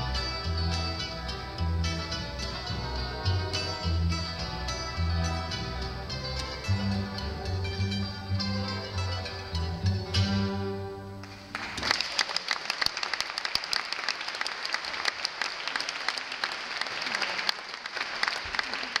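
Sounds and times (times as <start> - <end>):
audience applause: 11.2 - 19.0.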